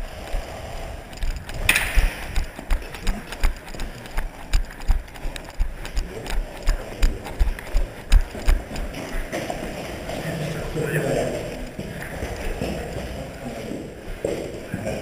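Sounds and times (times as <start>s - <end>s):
gear rattling and knocking: 1.1s - 9.6s
footsteps running on concrete: 1.6s - 15.0s.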